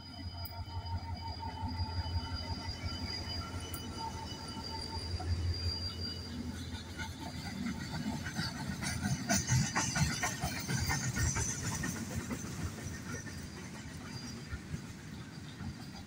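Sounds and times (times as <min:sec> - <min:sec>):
low train rumble: 0:00.0 - 0:16.0
hissing screech of wheels: 0:00.3 - 0:08.3
freight train wheels clattering: 0:02.4 - 0:16.0.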